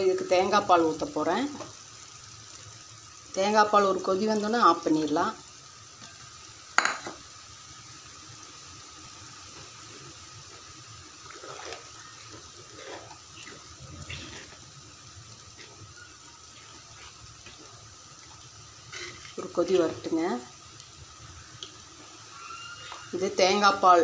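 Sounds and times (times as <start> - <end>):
faint steady hiss: 0.0 - 24.0
spoon scraping pot: 11.3 - 14.7, 18.9 - 19.8.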